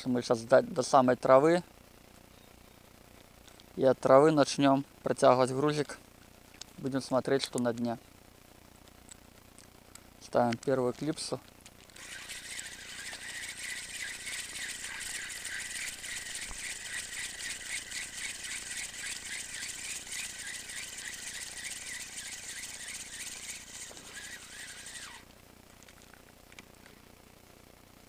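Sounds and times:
fishing reel whirring: 11.9 - 25.3.

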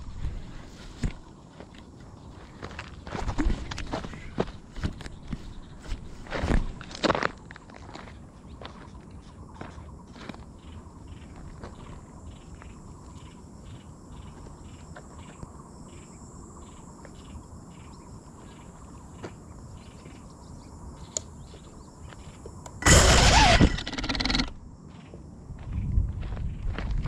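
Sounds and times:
crickets chirping: 0.0 - 27.0
thin high insect buzz: 22.8 - 24.6.

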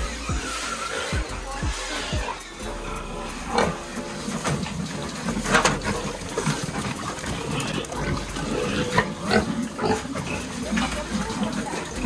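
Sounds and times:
pigs grunting and eating: 0.0 - 12.0
knocks and clatters: 4.3 - 7.3.

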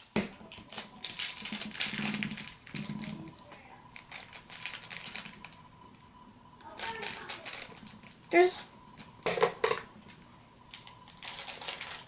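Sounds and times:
plastic wrapper crinkling: 0.5 - 5.6, 6.7 - 8.4, 10.7 - 12.0.

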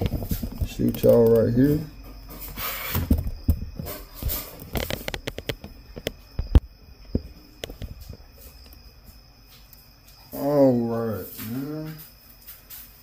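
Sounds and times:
rustling: 0.0 - 6.5.

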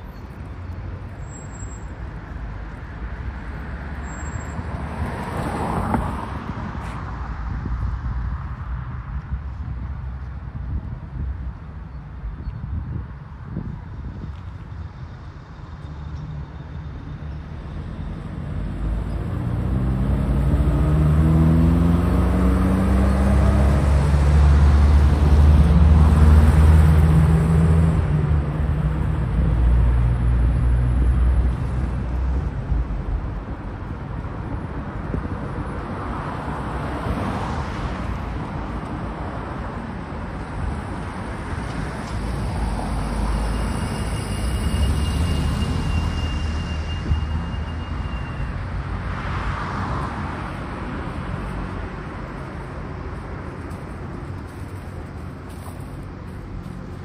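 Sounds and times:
traffic hum: 0.0 - 57.0
vehicle engine passing by: 17.8 - 32.0.

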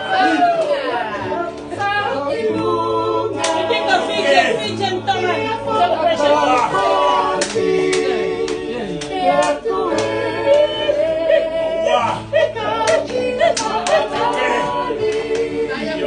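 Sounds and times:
voices singing together: 0.0 - 16.0
hand claps: 0.2 - 0.9, 3.4 - 3.8, 7.4 - 10.7, 12.8 - 15.6.

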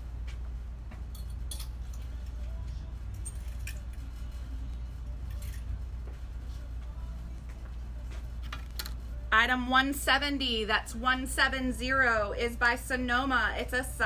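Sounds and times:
steady low hum: 0.0 - 14.0
clothes hangers clinking: 1.1 - 2.4, 3.1 - 4.0, 5.3 - 5.8.

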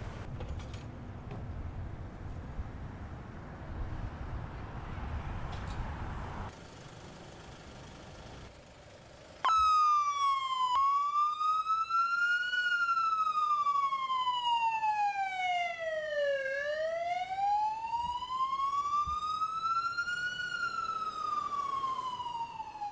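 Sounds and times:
ambulance siren wailing: 9.4 - 22.9.

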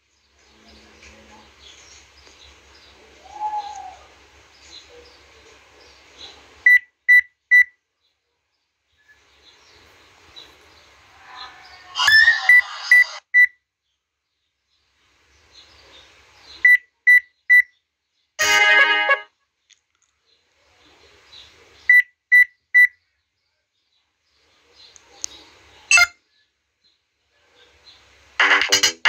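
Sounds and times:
phone startup sound: 18.4 - 19.3, 28.4 - 29.0
quick high phone beeps: 25.9 - 26.1.

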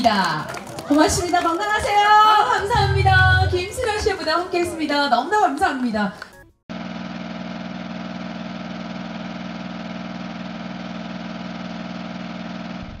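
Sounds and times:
film projector whirring: 6.7 - 12.8.

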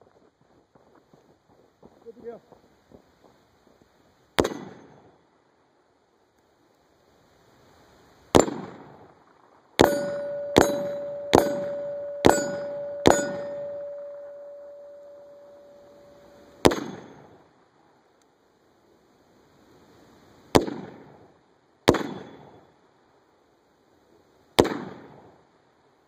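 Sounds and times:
rifle shots: 4.4 - 4.8, 8.3 - 8.9, 9.8 - 17.2, 20.5 - 21.0, 21.9 - 22.4, 24.6 - 25.1
steel plate ringing: 9.8 - 16.6
bullets clanging on steel: 9.8 - 16.7.

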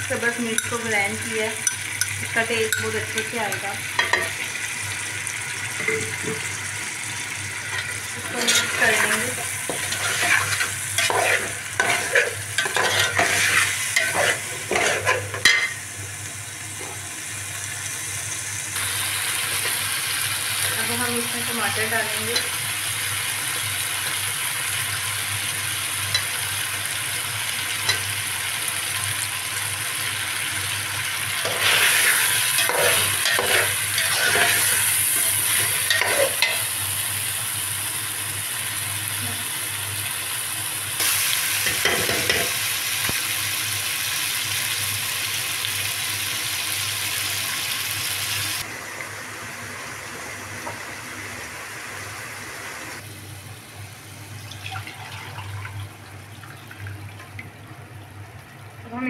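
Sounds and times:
food sizzling in a pot: 0.0 - 59.0
stirring and scraping pot: 7.7 - 15.7, 31.4 - 36.7.

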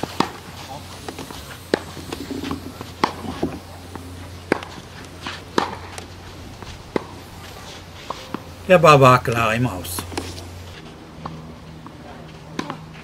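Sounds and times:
racket striking tennis ball: 0.1 - 3.2, 4.4 - 10.6
tennis ball bouncing: 3.9 - 11.4, 12.5 - 12.8.

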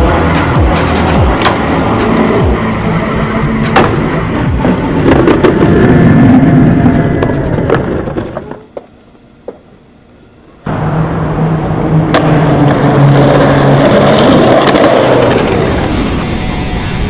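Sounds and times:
skateboard wheels rolling on concrete: 0.0 - 17.0
skateboard clack: 0.8 - 2.6, 3.6 - 6.0, 6.7 - 9.8, 12.0 - 15.8.

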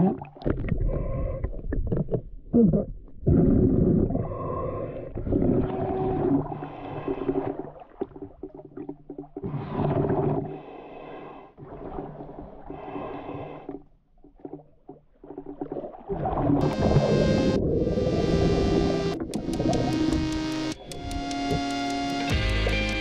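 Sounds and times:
breathing through a snorkel: 0.8 - 1.6, 3.6 - 5.4, 6.5 - 7.7, 9.5 - 11.8, 12.6 - 13.9
water swishing: 3.3 - 21.6.

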